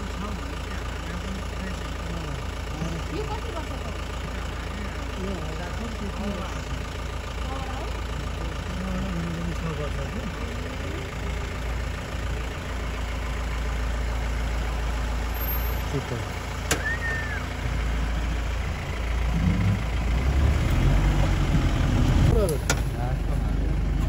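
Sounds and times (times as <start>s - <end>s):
vehicle engine rumbling: 0.0s - 24.0s
high whistle-like call: 16.7s - 17.6s.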